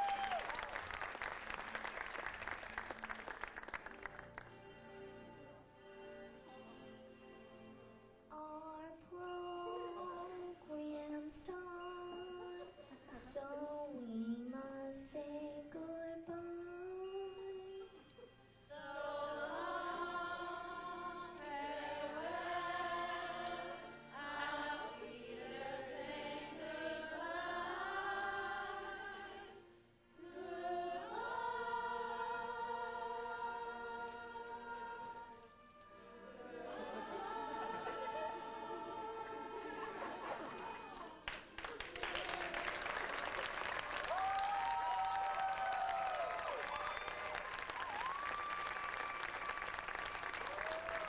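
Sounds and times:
chorus singing long notes: 11.4s - 29.6s, 30.2s - 40.2s.

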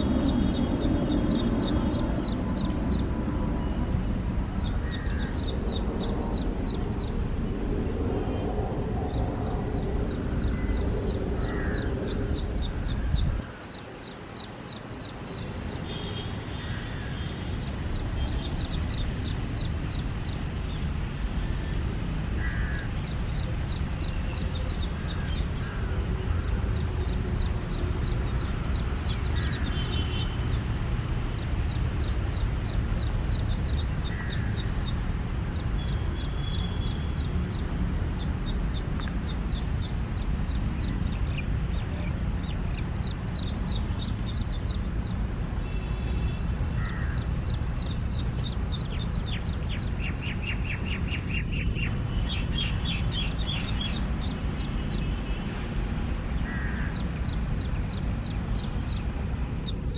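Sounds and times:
small birds chirping: 0.0s - 21.2s, 22.4s - 59.9s
crows cawing: 11.4s - 11.9s, 22.4s - 22.9s, 46.8s - 47.2s, 56.4s - 56.9s.

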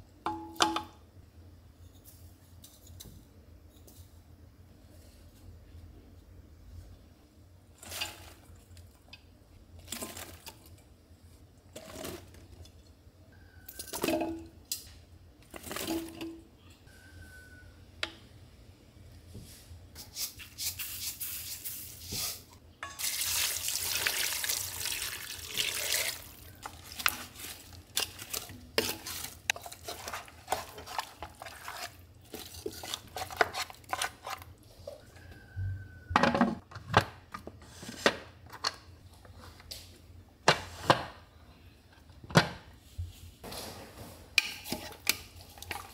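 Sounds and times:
liquid pouring: 23.0s - 26.5s.

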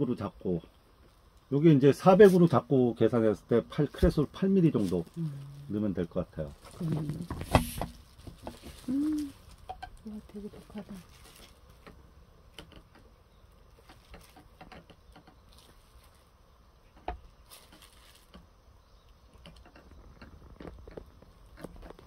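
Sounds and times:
small clicks and taps: 11.8s - 13.1s.

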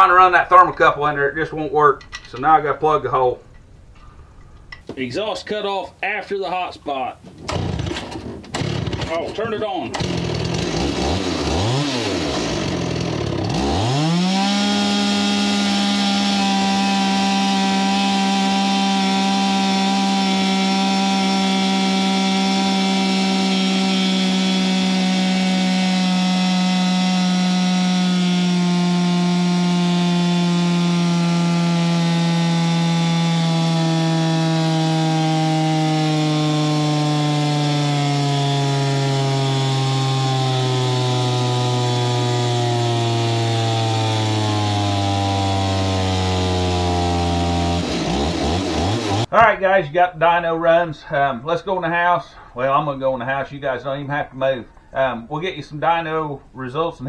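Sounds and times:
chainsaw engine revving: 7.5s - 49.3s.

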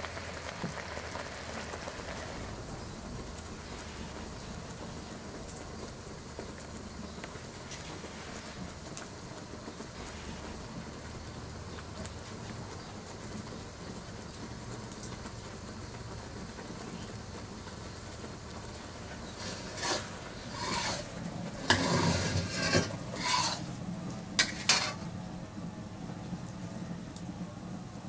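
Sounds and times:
steady low hiss: 0.0s - 28.0s
skewers scraping and clattering: 19.0s - 25.2s.

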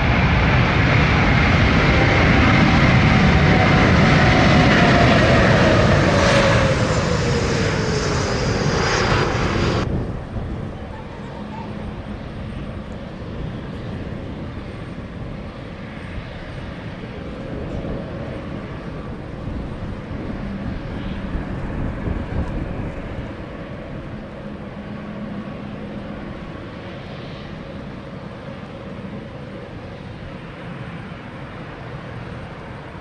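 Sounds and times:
turboprop engine and propeller drone: 0.0s - 33.0s.

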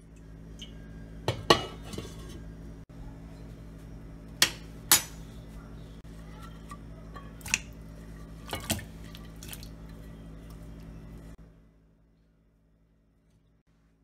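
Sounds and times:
low steady hum: 0.0s - 14.0s
metal pot and ceramic plate clinking: 1.3s - 2.4s
food pieces splashing into water: 8.5s - 9.9s.

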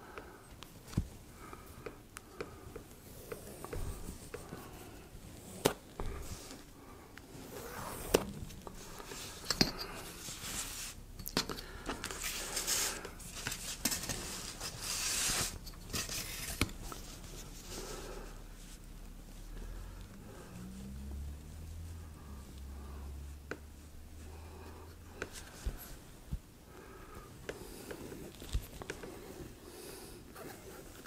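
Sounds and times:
scratchy scraping on foam: 12.3s - 16.5s.

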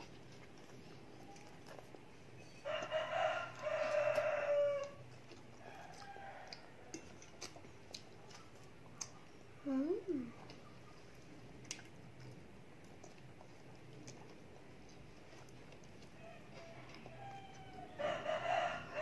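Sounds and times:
rooster crowing: 2.6s - 5.0s, 5.6s - 6.9s, 16.2s - 19.0s.

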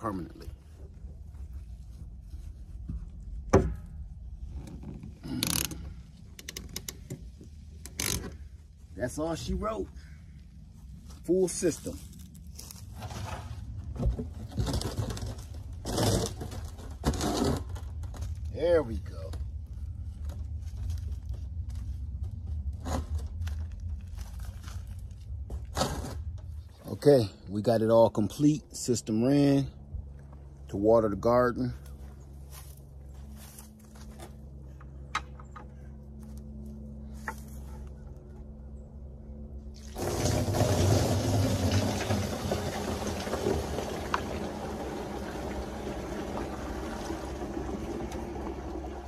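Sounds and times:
low rumble: 17.8s - 27.8s
hands scraping plastic barrel: 40.0s - 44.4s.

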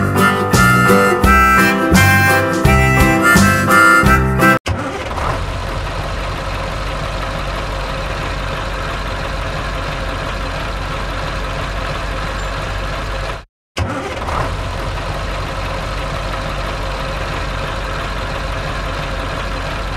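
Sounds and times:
truck engine idling: 0.0s - 19.9s.

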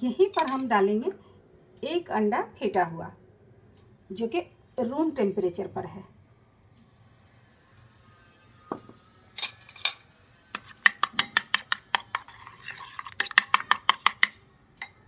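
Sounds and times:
spoon clinking glass bowl: 0.4s - 0.7s, 9.4s - 10.0s, 11.0s - 15.0s.

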